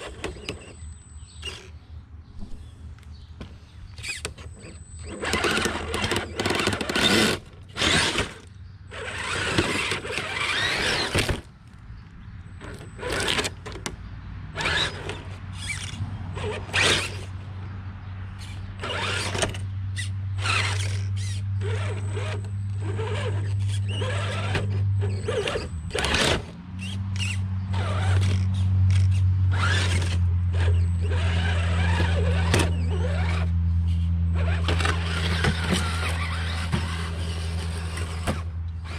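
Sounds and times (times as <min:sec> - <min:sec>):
electric drivetrain whirring: 0:00.0 - 0:38.9
tyres scraping on stone: 0:03.9 - 0:11.5, 0:27.2 - 0:38.9.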